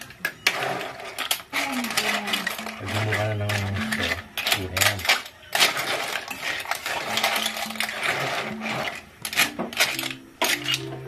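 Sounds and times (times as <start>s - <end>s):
clams clattering in a metal pan: 0.2s - 11.0s.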